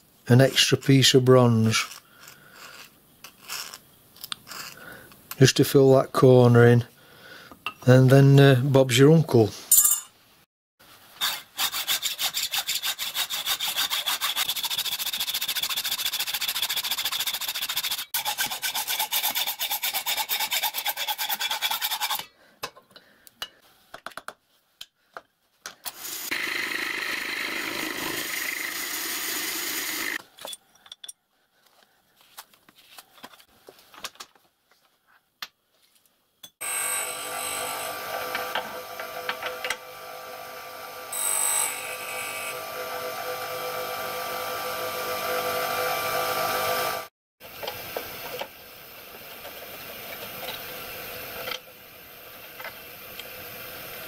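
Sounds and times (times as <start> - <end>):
hacksaw rasping through metal: 11.2 - 22.3
bench grinder humming: 26.0 - 30.2, 36.6 - 47.1
milling machine cutting metal: 36.6 - 47.1.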